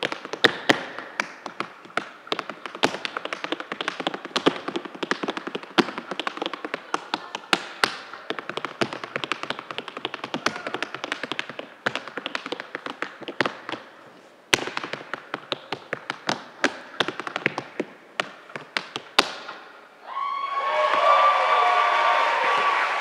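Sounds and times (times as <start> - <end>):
loud foot stamp: 0.0 - 13.9, 14.5 - 19.6
tap shoes on wooden stage: 0.0 - 19.7
audience applause and cheers: 20.0 - 23.0.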